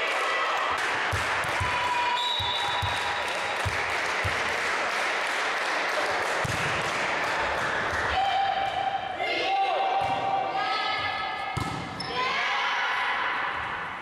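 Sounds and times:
clapping echoing in a hall: 0.0 - 8.3.

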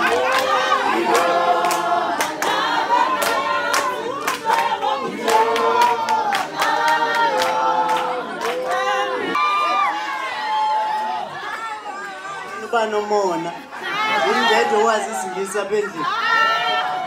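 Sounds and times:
hand clapping: 0.0 - 2.6, 3.2 - 8.8
women singing in unison: 0.0 - 9.4.

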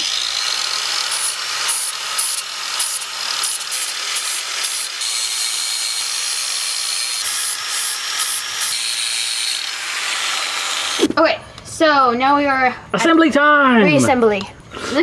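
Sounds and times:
angle grinder grinding metal: 0.0 - 11.2.

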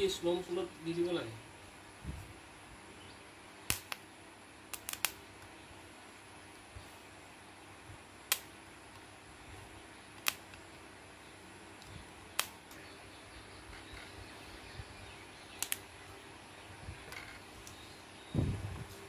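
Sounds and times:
spot welder spark snaps: 3.6 - 4.1, 4.7 - 5.5, 8.2 - 9.1, 10.1 - 10.6, 11.8 - 12.8, 15.5 - 16.0.

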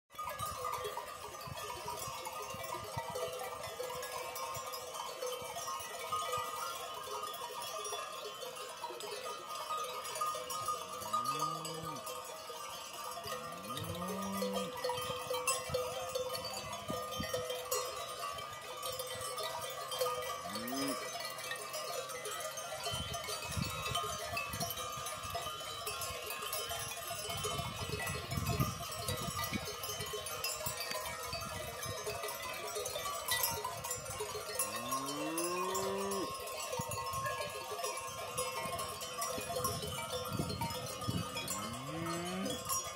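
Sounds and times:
cowbells clanking: 0.1 - 42.9
cows mooing: 11.1 - 12.1, 13.4 - 14.8, 20.5 - 21.0, 34.7 - 36.4, 41.5 - 42.7.

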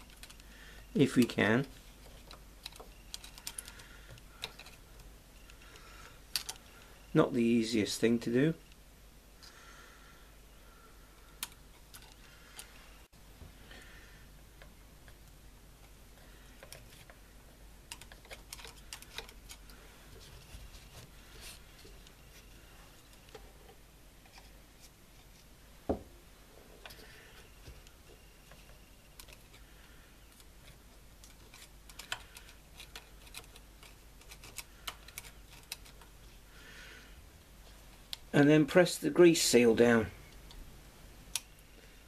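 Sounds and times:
small clicks and scrapes: 0.0 - 6.9, 11.2 - 12.8, 14.6 - 17.3, 17.9 - 25.5, 26.8 - 36.4.

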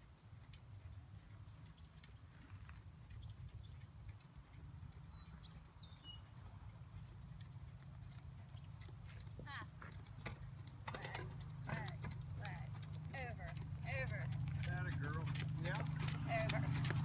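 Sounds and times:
faint hoofbeats on sand: 0.0 - 17.0
bird chirping: 1.1 - 2.5, 4.9 - 6.5, 8.0 - 8.9.

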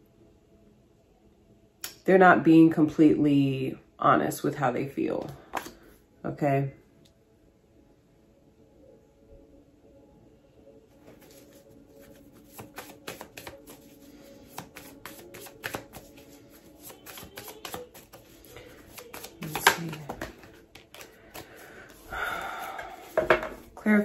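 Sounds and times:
cards being shuffled: 5.2 - 5.8, 11.0 - 23.8.

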